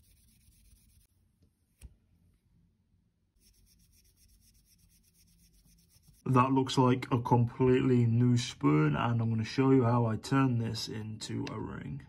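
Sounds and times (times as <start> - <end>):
rubbing polish on spoon: 0.0 - 1.1, 3.4 - 6.4.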